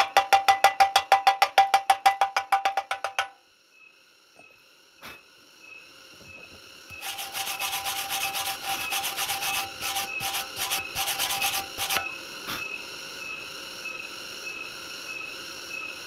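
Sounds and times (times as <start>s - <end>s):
wooden stick scraping steel: 6.9s - 12.1s.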